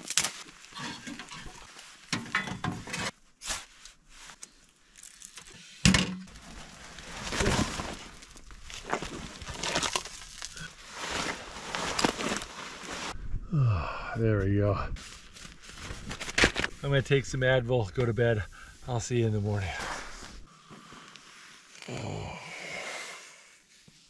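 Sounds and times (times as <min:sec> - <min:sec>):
clothing rustling: 0:06.4 - 0:13.2, 0:15.0 - 0:17.0.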